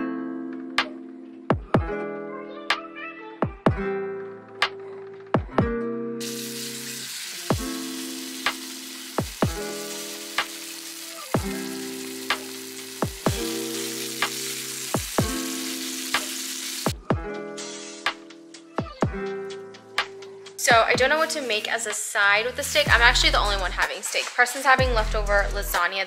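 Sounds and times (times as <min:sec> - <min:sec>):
background music with plucked notes: 0:00.0 - 0:26.0
steak sizzling in a skillet: 0:06.2 - 0:17.0.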